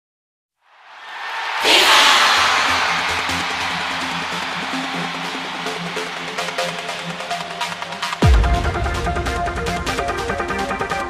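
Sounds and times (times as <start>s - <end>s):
rising whoosh: 0.8s - 5.5s
intro music: 1.6s - 11.0s.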